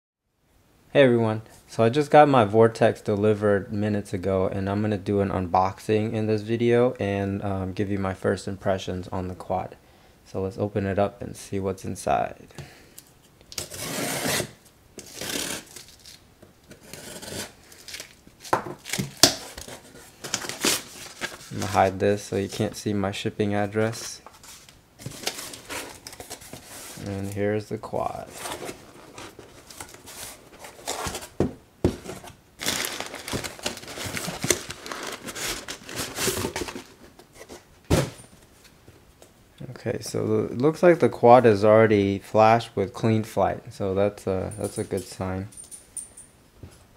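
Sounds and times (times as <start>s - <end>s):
packing paper crinkling: 15.0s - 16.2s, 16.8s - 22.8s, 23.8s - 27.4s, 28.1s - 37.6s
cardboard clicks and knocks: 30.9s - 32.3s.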